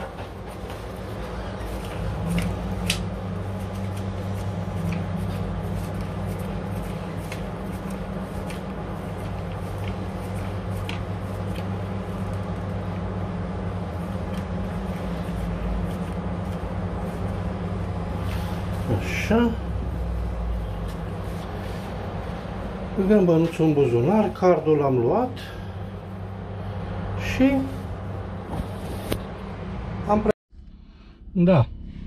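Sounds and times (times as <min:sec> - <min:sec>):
banknotes flicking and rustling: 0:00.0 - 0:24.2
low electrical hum: 0:00.0 - 0:32.0.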